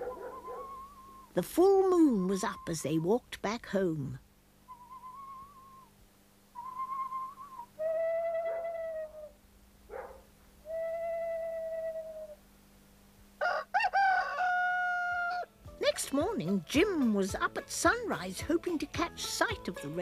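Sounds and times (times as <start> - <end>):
rooster crowing: 13.4 - 15.5.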